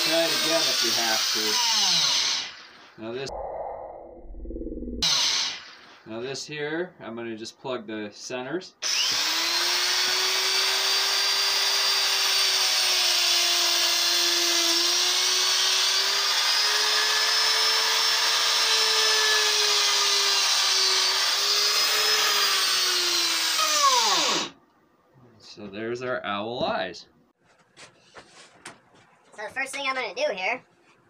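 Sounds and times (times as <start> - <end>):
electric drill boring wood: 0.0 - 3.0, 5.0 - 5.8, 8.8 - 24.6.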